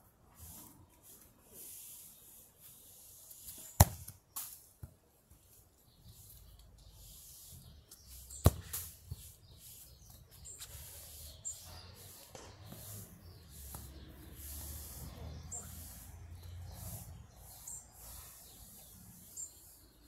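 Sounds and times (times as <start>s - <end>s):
football kicked thud: 3.8s - 4.1s.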